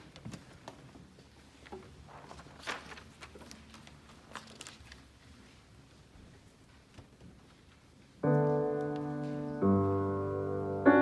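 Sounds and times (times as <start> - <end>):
paper rustling: 1.5 - 5.6.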